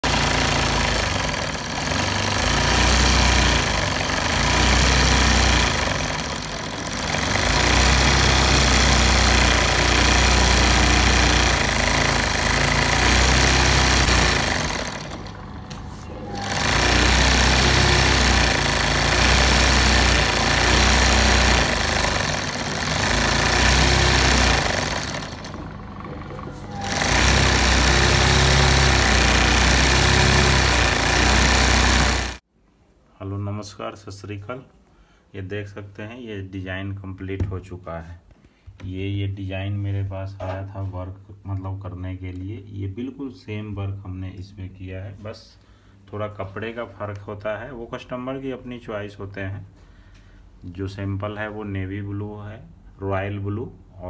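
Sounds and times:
sewing machine needle clatter: 0.0s - 15.5s, 16.2s - 32.4s
sewing machine motor hum: 0.0s - 32.4s.

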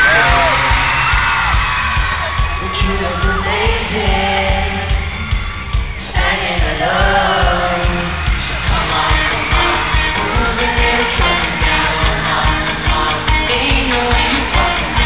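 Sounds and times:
boy band singing: 0.0s - 15.0s
drum and bass beat: 0.0s - 15.0s.

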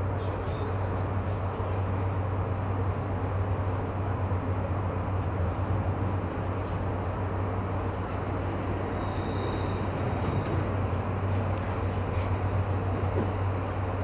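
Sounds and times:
train wheels on rail: 5.1s - 14.0s.

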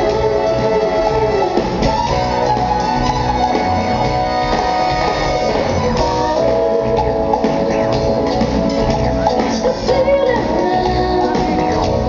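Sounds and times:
horn section: 0.0s - 9.6s
bass: 0.0s - 12.0s
drums: 0.0s - 12.0s
electric guitar: 0.0s - 12.0s.

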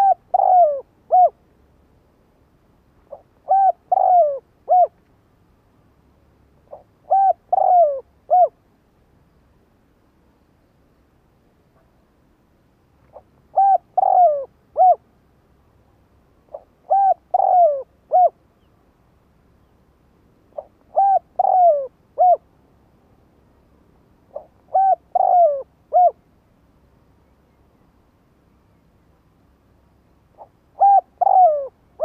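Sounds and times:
dove cooing: 0.0s - 1.4s, 3.1s - 5.0s, 6.7s - 8.6s, 13.1s - 15.0s, 16.5s - 18.4s, 20.5s - 22.4s, 24.3s - 26.2s, 30.4s - 32.0s.

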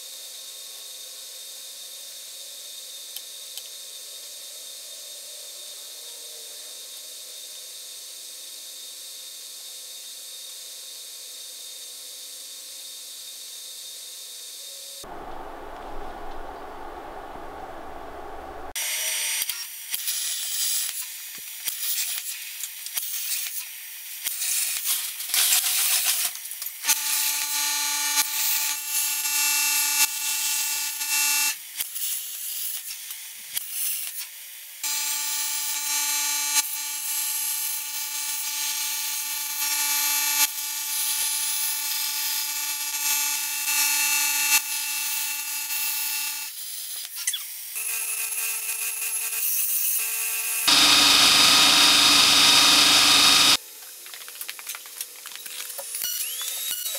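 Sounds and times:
plasma cutter hissing and whining: 35.2s - 53.6s
belt grinder grinding metal: 50.5s - 53.6s.

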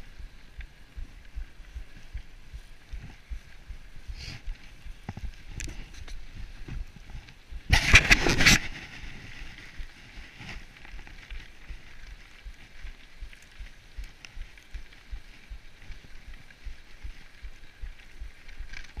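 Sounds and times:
rough burst of noise: 0.0s - 12.6s
bicycle tyres hissing on snow: 0.0s - 19.0s
wind rumbling on microphone: 0.0s - 19.0s.

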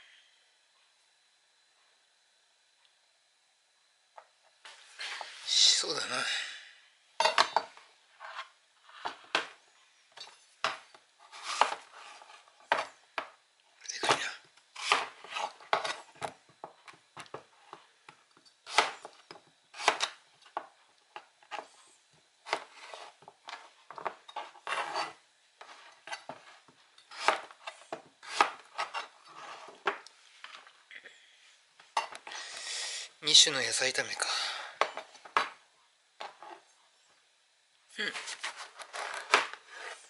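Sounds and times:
knife slicing zucchini: 13.9s - 16.0s, 18.6s - 20.2s, 24.6s - 29.8s.

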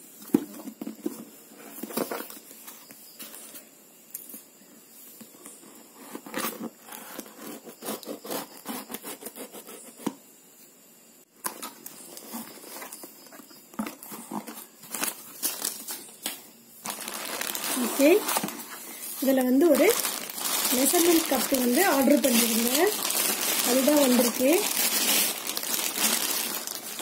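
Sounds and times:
paper packing crinkling: 13.8s - 27.0s.

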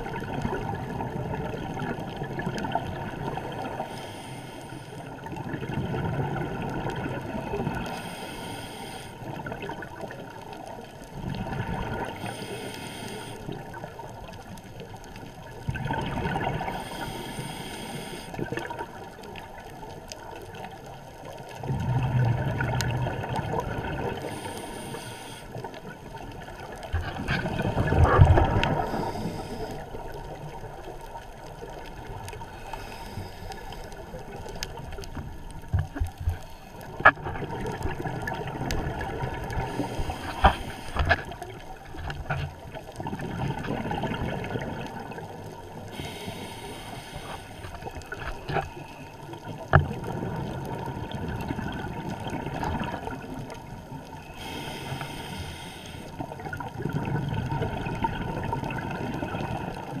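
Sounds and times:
exhaled bubbles rumbling underwater: 0.0s - 60.0s
regulator inhalation hiss: 3.8s - 5.1s, 7.9s - 9.2s, 12.2s - 13.6s, 16.7s - 18.4s, 24.2s - 25.6s, 28.8s - 29.9s, 32.5s - 34.0s, 39.7s - 41.0s, 45.9s - 47.7s, 54.4s - 56.2s.

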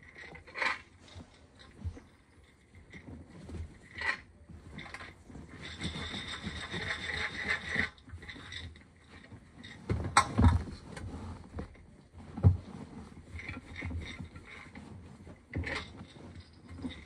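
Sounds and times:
popcorn kernels rattling in a jar: 3.8s - 10.3s.

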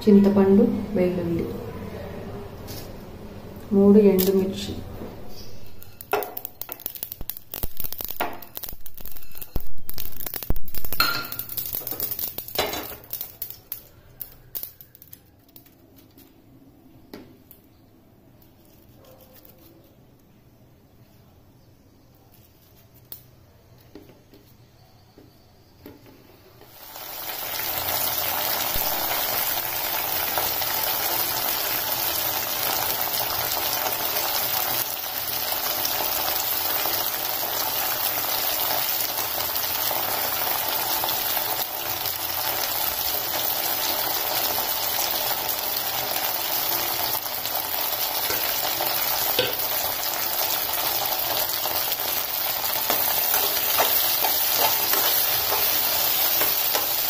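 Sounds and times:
vegetables sizzling in a pan: 4.1s - 15.0s, 26.4s - 57.0s.

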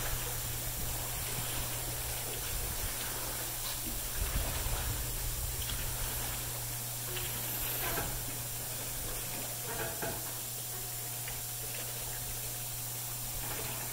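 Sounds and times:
steady low hum: 0.0s - 13.9s
hiss of fine mist spraying: 5.8s - 9.4s.

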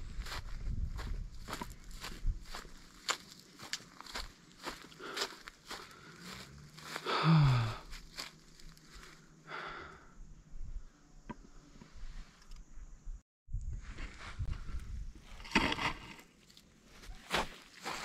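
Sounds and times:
footsteps on a trail: 0.0s - 9.3s, 16.9s - 18.0s
breathy exhale: 4.9s - 7.9s, 8.9s - 10.2s
man sighing: 4.9s - 8.0s, 9.5s - 10.1s.

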